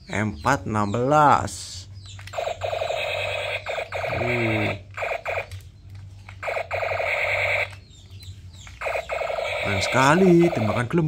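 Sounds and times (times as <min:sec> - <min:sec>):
electronic machine-gun effect: 0:02.3 - 0:05.6, 0:06.4 - 0:07.8, 0:08.8 - 0:11.0.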